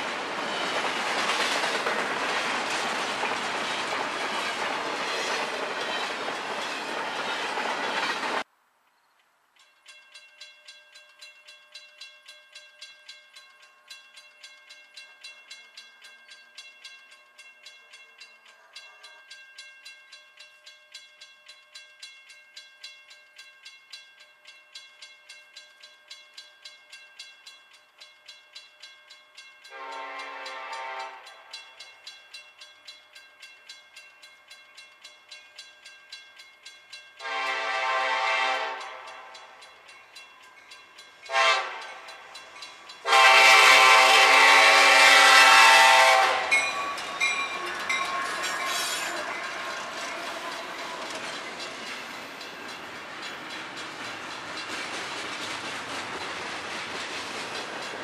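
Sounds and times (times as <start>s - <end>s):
locomotive engines and wheels rumbling: 0.0s - 8.5s, 36.6s - 58.0s
railroad crossing bells: 0.0s - 58.0s
train horn blasts: 29.7s - 31.5s, 37.2s - 39.3s, 41.3s - 42.2s, 43.0s - 51.2s.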